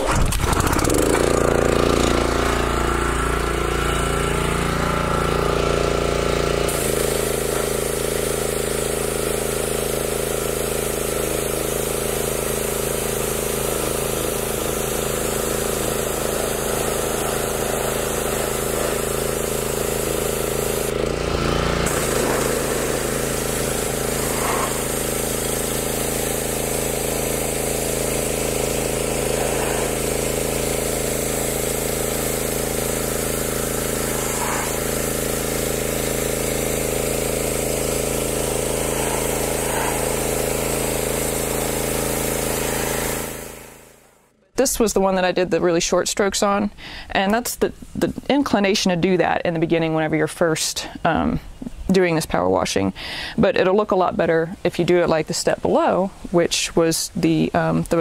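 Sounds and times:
pressure washer engine running: 0:00.0 - 0:44.8
water spray hissing on wood: 0:06.6 - 0:21.0, 0:21.8 - 0:44.0.

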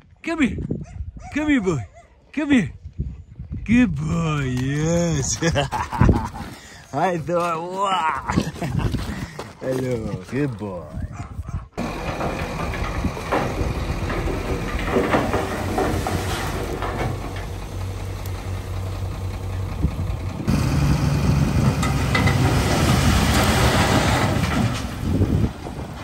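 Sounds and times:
rocks tumbling onto ground: 0:04.3 - 0:10.5, 0:11.8 - 0:18.4
diesel engine running: 0:11.8 - 0:26.0.

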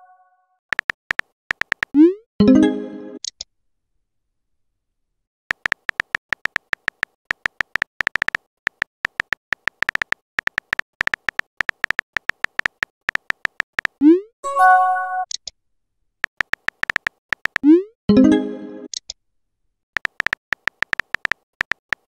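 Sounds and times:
keyboard typing clicks: 0:00.7 - 0:02.0, 0:05.5 - 0:14.0, 0:16.3 - 0:17.8, 0:20.0 - 0:22.0.

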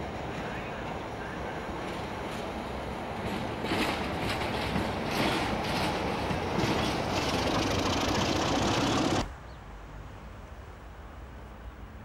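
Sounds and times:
diesel locomotive engine running: 0:00.4 - 0:09.3.

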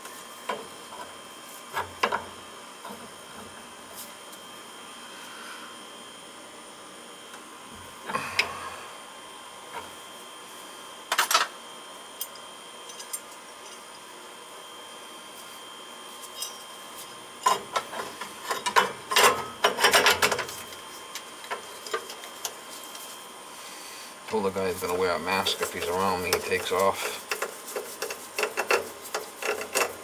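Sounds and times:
faint steady hum: 0:00.0 - 0:30.0
tools clicking and rattling on metal: 0:17.4 - 0:20.6.

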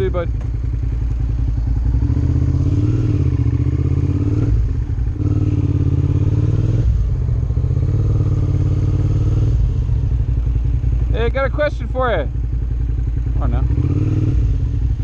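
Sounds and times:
motorcycle engine riding off: 0:00.0 - 0:15.0.

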